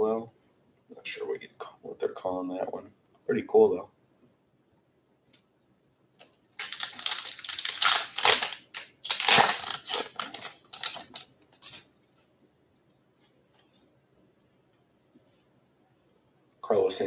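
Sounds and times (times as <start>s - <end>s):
foil wrapper tearing and crinkling: 6.6s - 11.8s.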